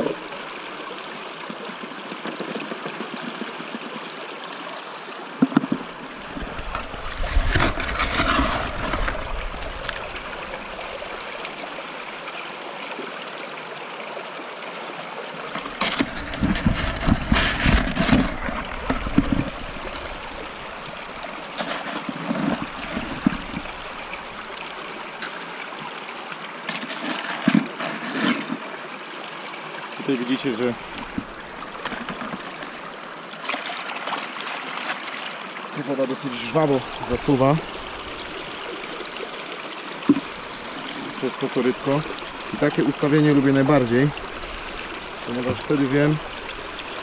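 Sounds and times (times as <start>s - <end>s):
water rushing through sluice box: 0.0s - 47.0s
scraping and splashing of gravel: 6.2s - 11.8s, 15.6s - 24.5s, 26.7s - 28.6s, 30.7s - 32.8s.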